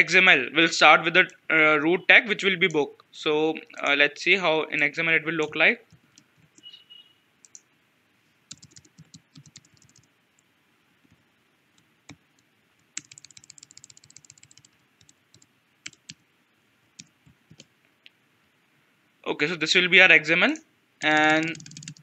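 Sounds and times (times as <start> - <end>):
faint keyboard typing: 5.4 - 6.7, 7.4 - 7.7, 8.5 - 11.2, 11.8 - 16.2, 17.0 - 17.7, 20.5 - 22.0.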